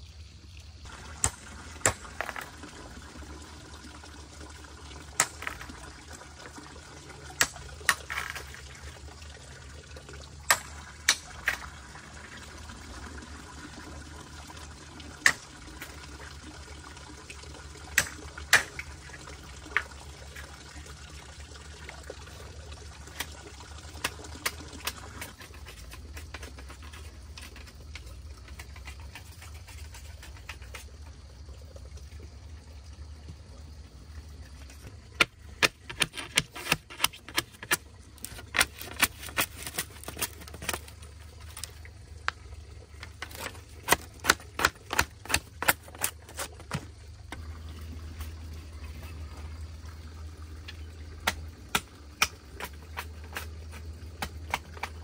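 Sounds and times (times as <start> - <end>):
running water: 0.0 - 55.0
bamboo poles knocking: 5.2 - 5.6.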